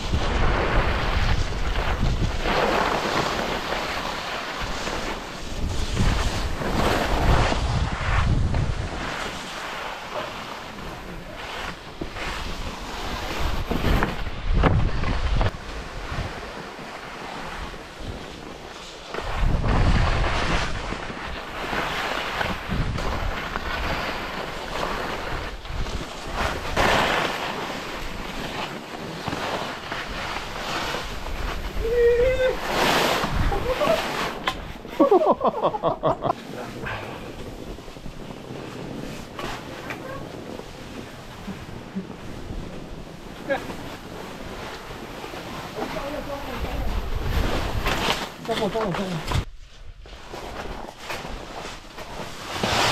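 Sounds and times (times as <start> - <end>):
wind buffeting microphone: 0.0 - 2.9, 5.2 - 9.2, 11.9 - 16.4, 19.2 - 21.2, 30.1 - 35.0, 35.9 - 48.0
skis scraping over snow: 0.0 - 52.9.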